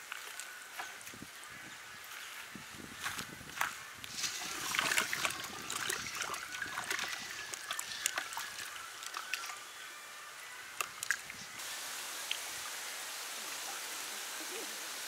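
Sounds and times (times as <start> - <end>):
water sloshing in a metal pot: 4.2 - 9.6.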